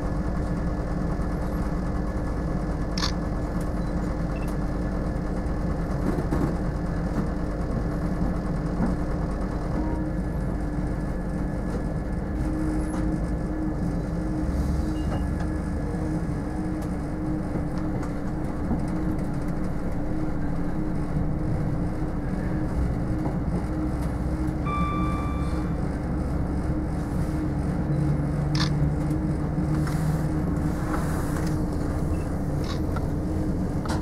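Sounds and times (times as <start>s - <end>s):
diesel train rumble: 0.0s - 34.0s
short high beep: 24.6s - 25.9s.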